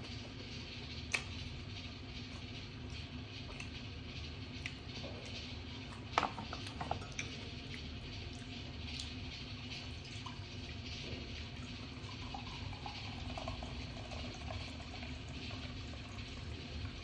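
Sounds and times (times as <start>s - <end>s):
cola pouring into glass fizzing: 9.8s - 17.0s.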